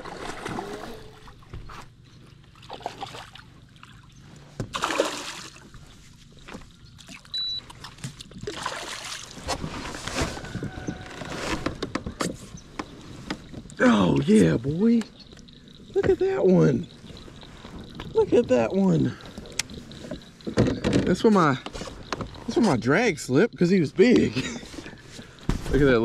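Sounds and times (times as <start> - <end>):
fish splashing at surface: 4.7 - 5.7, 7.1 - 9.5.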